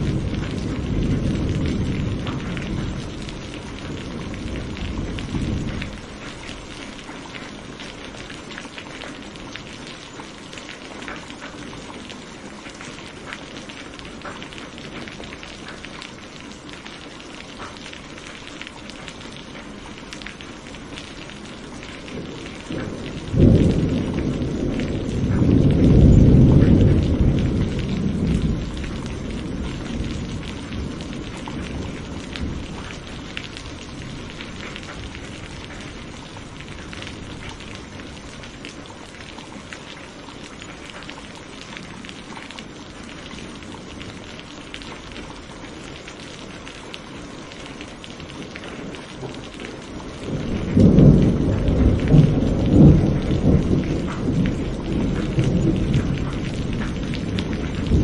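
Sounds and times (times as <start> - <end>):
rolling thunder: 0.0 - 8.5, 21.8 - 39.4, 48.2 - 58.0
rain pattering on foliage: 0.0 - 58.0.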